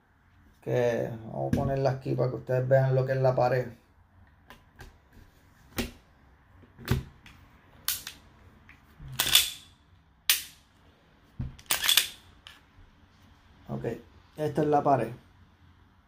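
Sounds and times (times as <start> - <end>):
pistol slide clicking: 9.2 - 9.7, 10.3 - 10.6.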